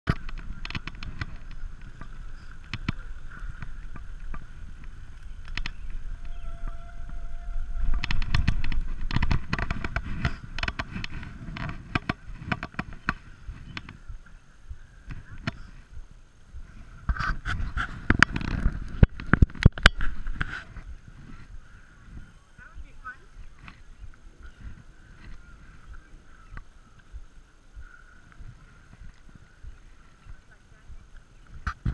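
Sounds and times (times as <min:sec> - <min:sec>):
bike clicks and knocks: 0:00.1 - 0:06.3, 0:07.9 - 0:14.0
bicycle tyre noise: 0:00.1 - 0:14.2
wind noise on microphone: 0:00.1 - 0:31.9.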